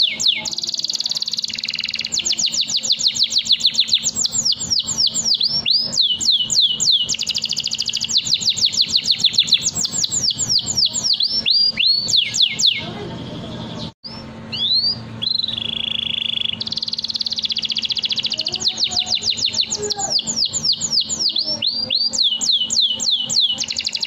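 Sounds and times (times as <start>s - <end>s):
canary singing: 0.0s - 24.0s.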